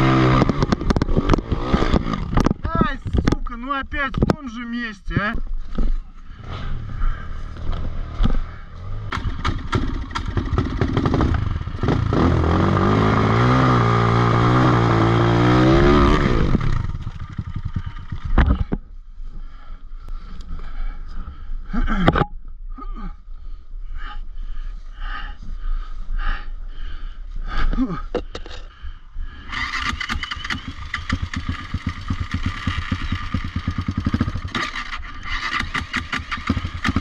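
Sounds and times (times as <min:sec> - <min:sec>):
dirt bike engine revving: 0:00.0 - 0:02.6, 0:06.4 - 0:18.3, 0:29.5 - 0:37.0
bike clattering and scraping: 0:00.0 - 0:03.5.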